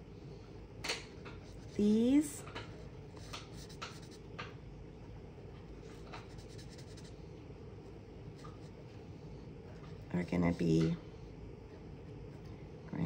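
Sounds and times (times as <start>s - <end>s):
marker rubbing on card: 6.1s - 7.1s.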